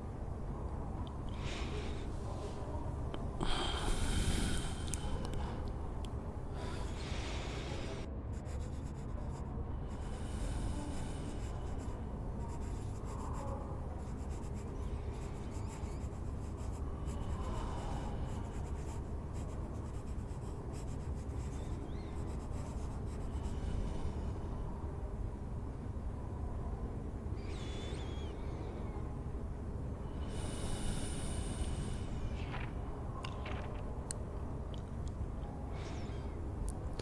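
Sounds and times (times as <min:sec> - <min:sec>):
low room rumble: 0:00.0 - 0:37.0
pen scratching on paper: 0:08.3 - 0:09.5, 0:11.2 - 0:23.6.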